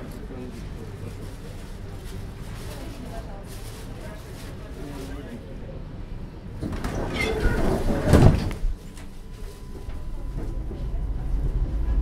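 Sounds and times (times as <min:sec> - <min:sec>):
tram running noise: 0:00.0 - 0:12.0
tram doors closing clatter: 0:06.5 - 0:12.0.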